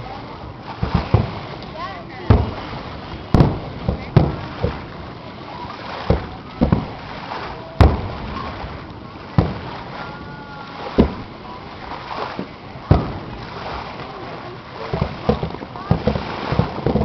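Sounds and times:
firework shells bursting: 0:00.7 - 0:01.7, 0:02.3 - 0:05.2, 0:06.0 - 0:10.2, 0:10.9 - 0:14.1, 0:14.9 - 0:17.0.

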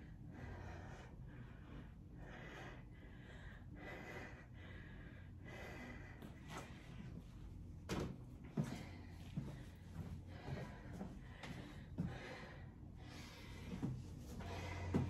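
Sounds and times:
person breathing hard: 0:00.0 - 0:07.2, 0:08.5 - 0:15.0.

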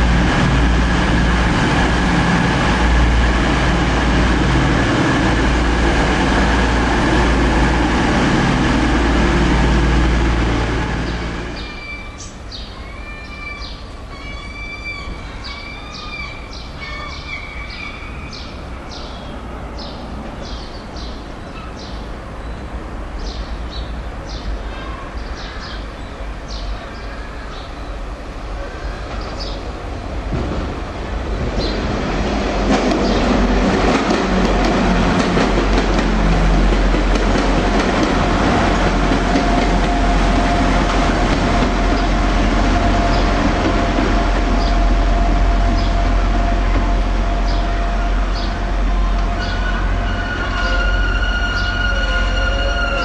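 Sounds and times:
diesel train running past: 0:00.0 - 0:53.0
birds chirping: 0:10.6 - 0:28.0, 0:31.6 - 0:34.7, 0:47.4 - 0:53.0.

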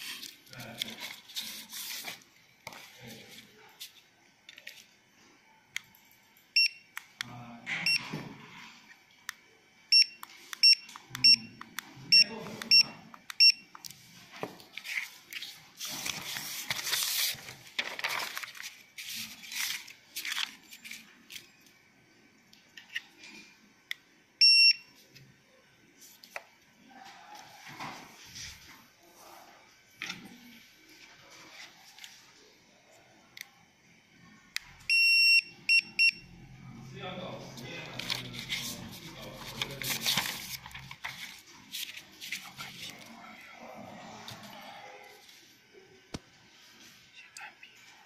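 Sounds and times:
paper rustling: 0:00.0 - 0:04.0, 0:14.2 - 0:21.5, 0:37.8 - 0:43.2
barcode scanner beeps: 0:06.6 - 0:06.9, 0:09.9 - 0:13.7, 0:24.4 - 0:24.9, 0:34.9 - 0:36.3.

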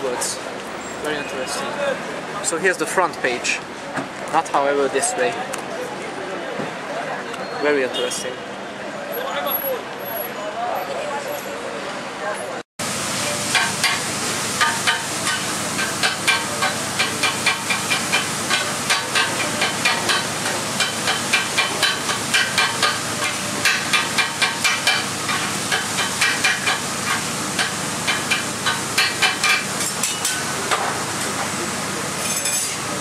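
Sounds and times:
frying sizzle: 0:12.8 - 0:33.0
metal spatulas clanking on griddle: 0:13.5 - 0:31.4, 0:32.2 - 0:32.9.

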